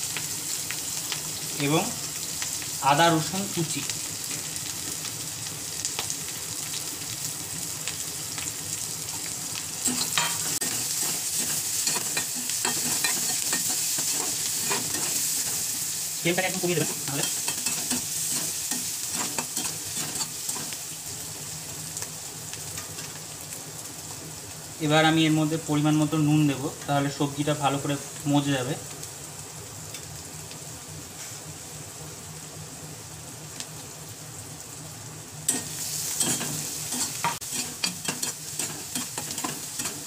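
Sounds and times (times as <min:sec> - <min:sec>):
vegetables sizzling in oil: 0:00.0 - 0:40.0
metal spatula scraping pan: 0:35.5 - 0:40.0.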